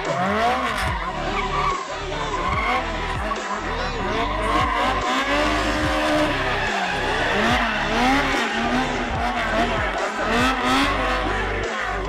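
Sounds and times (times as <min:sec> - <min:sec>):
car engine revving hard: 0:00.0 - 0:12.0
tyres squealing on asphalt: 0:00.0 - 0:12.0.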